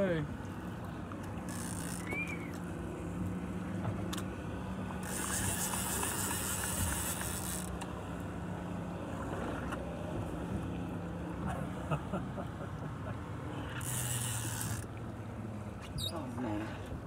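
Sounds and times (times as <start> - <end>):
outboard motor idling hum: 0.0 - 17.0
fishing reel clicking: 1.5 - 2.6, 5.0 - 7.9, 13.8 - 14.9.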